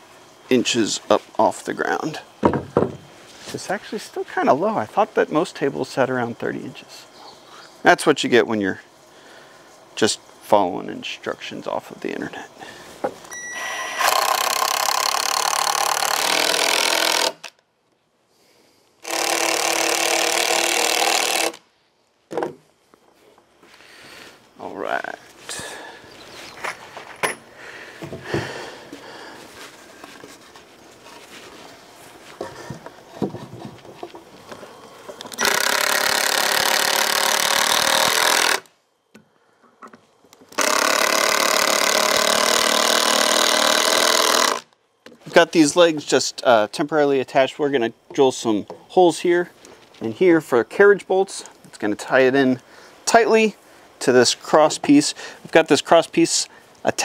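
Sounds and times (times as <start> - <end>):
boards knocking: 2.4 - 3.1
cordless drill driving screws: 13.5 - 17.5, 19.0 - 21.6, 35.3 - 38.7, 40.5 - 44.7.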